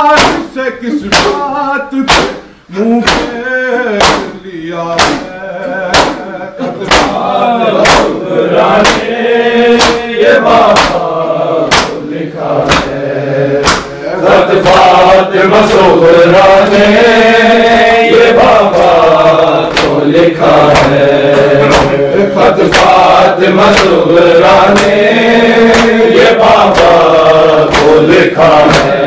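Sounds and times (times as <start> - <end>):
hands beating on chests: 0.0 - 2.4, 3.0 - 4.4, 5.0 - 5.3, 5.9 - 7.2, 7.8 - 9.1, 9.7 - 11.1, 11.7 - 12.0, 12.6 - 13.0, 13.6 - 14.0, 17.6 - 22.0, 22.6 - 25.0, 25.7 - 29.0
men chanting together: 0.0 - 29.0.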